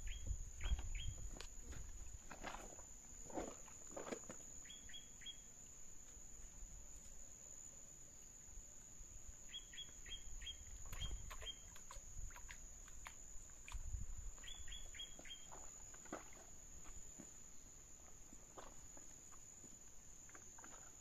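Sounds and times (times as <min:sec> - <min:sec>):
songbird singing high notes: 0:09.5 - 0:11.8.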